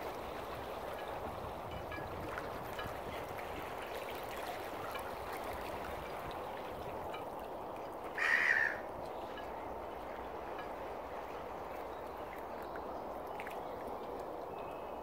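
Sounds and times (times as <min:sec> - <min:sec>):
water lapping: 0:00.0 - 0:15.0
harsh bird call: 0:08.2 - 0:08.8.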